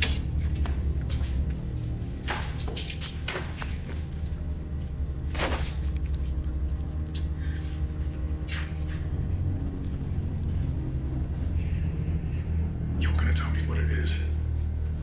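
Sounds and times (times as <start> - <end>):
low rumbling film score drone: 0.0 - 15.0.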